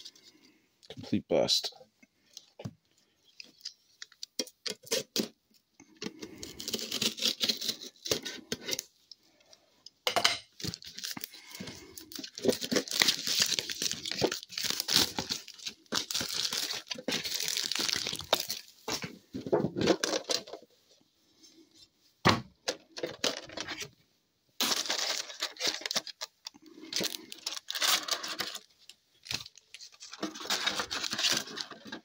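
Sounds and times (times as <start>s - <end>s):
plastic wrap crinkling: 10.6s - 20.6s, 24.6s - 32.0s.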